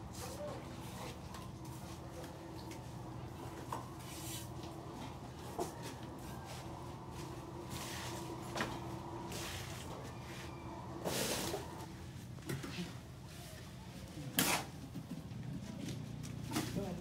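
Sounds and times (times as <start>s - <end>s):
steady low hum: 0.0s - 13.2s.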